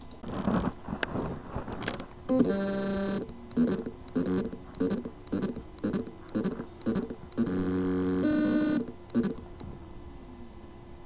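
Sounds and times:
hard drive motor humming in pulses: 1.7s - 10.0s.

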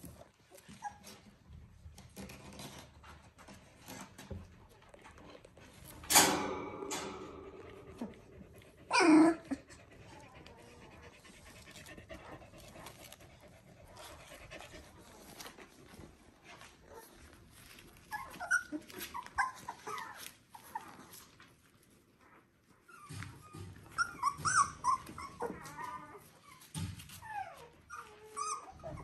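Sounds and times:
puppies scrabbling on bedding: 6.9s - 29.0s
puppy yelps: 8.9s - 9.7s, 18.1s - 20.9s, 23.0s - 26.6s, 27.2s - 29.0s.

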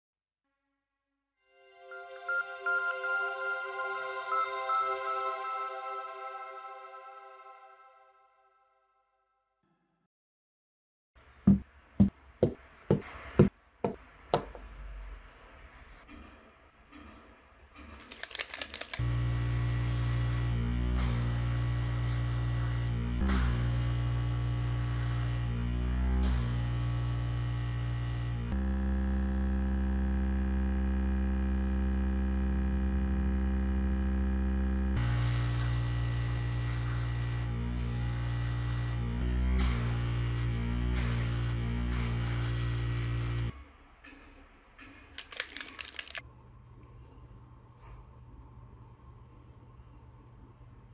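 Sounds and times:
background music: 1.5s - 8.7s
small clicks and rattles: 17.8s - 19.0s, 45.0s - 46.2s
compressor motor hum: 18.3s - 43.5s
airbrush hissing: 18.9s - 25.5s, 35.0s - 39.0s, 39.6s - 43.5s.

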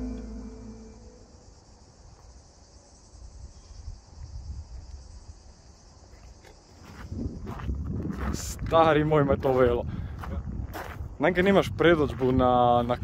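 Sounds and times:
insects chirping: 0.0s - 13.0s
wind on microphone: 6.9s - 13.0s.

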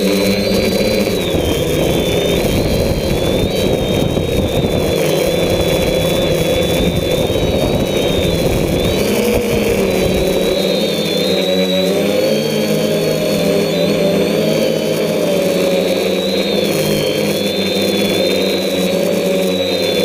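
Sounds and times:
drone motors whining: 0.0s - 20.0s
wind buffeting microphone: 0.4s - 10.8s.

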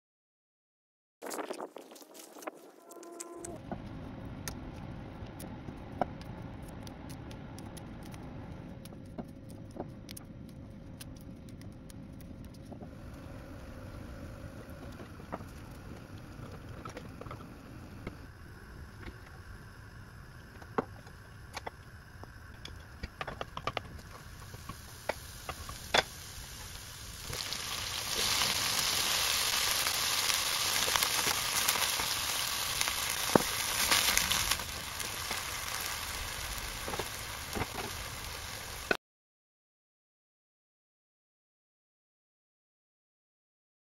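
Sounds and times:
vegetables sizzling in oil: 18.5s - 39.0s.

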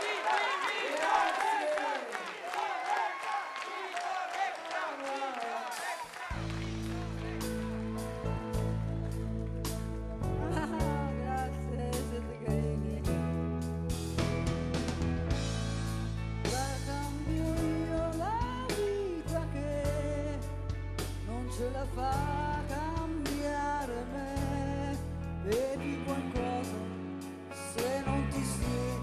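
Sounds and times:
rock band playing: 5.7s - 29.0s
woman singing: 10.5s - 13.3s, 16.5s - 20.4s.

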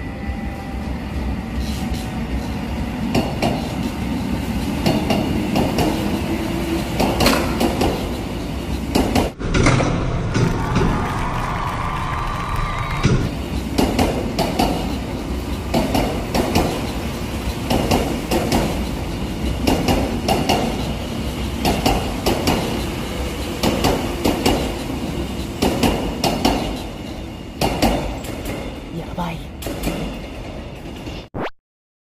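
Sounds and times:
train running rumble: 0.0s - 12.1s, 13.0s - 31.2s
train wheels clacking over rail joints: 1.6s - 10.9s, 13.3s - 28.9s, 29.6s - 31.2s.

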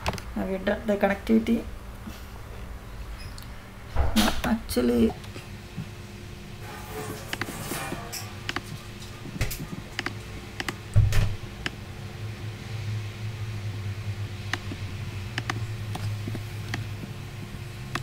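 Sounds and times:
steady low hum: 0.0s - 18.0s
computer mouse clicks: 8.5s - 10.8s, 14.5s - 14.8s, 15.4s - 16.9s.

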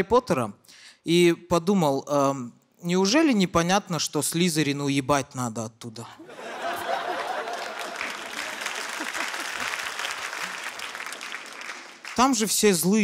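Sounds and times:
audience applauding: 6.5s - 12.6s.

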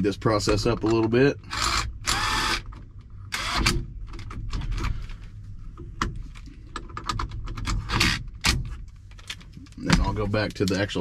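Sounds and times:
cordless drill bursts: 1.5s - 2.6s, 3.3s - 3.7s
metal clicks and rattles: 5.7s - 10.9s.

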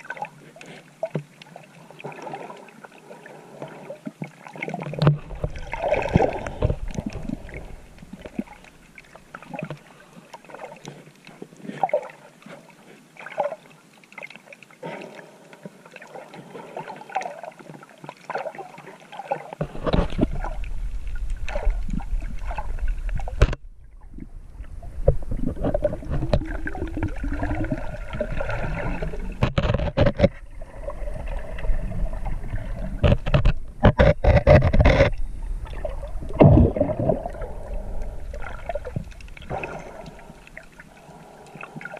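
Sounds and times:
water sloshing and bubbling: 0.0s - 41.9s
clicks and knocks: 29.4s - 30.4s.

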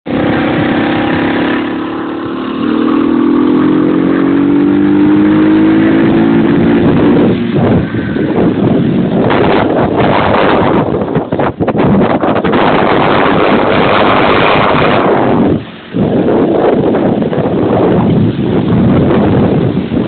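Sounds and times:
moped engine accelerating: 0.0s - 11.1s
wind buffeting microphone: 0.0s - 20.0s.

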